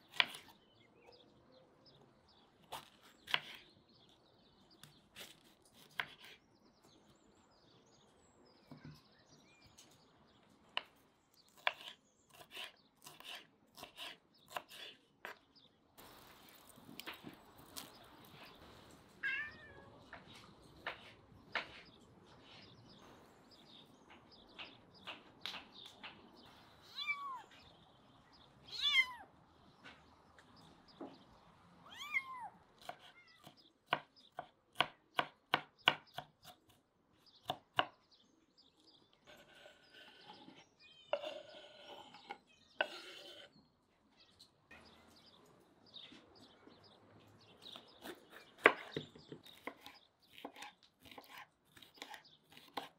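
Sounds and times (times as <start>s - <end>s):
knife chopping on wooden board: 11.5s - 15.4s, 33.9s - 36.6s, 48.0s - 52.9s
cat meowing: 19.2s - 20.0s, 26.8s - 27.5s, 28.7s - 29.3s, 31.8s - 33.5s.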